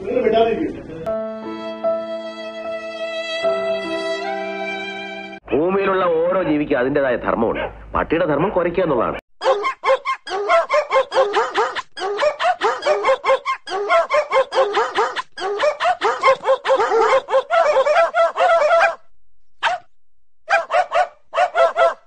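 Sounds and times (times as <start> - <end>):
dog barking: 9.4 - 19.9, 20.5 - 22.0.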